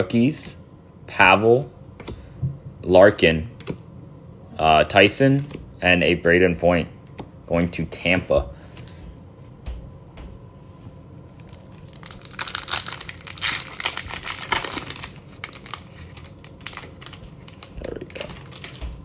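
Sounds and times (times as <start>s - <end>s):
foil wrapper crinkling and tearing: 11.4s - 19.0s.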